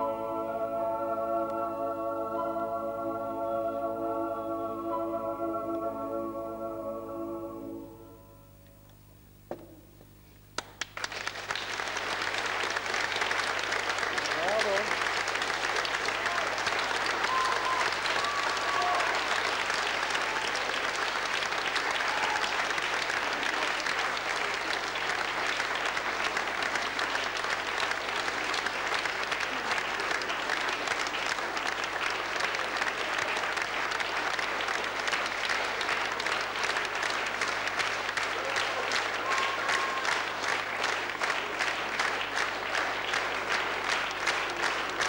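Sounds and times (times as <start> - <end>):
audience applause: 10.6 - 45.0.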